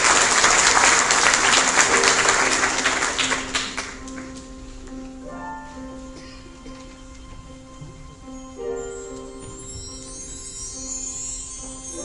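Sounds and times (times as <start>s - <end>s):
audience applauding: 0.0s - 4.4s
held musical notes: 1.4s - 12.0s.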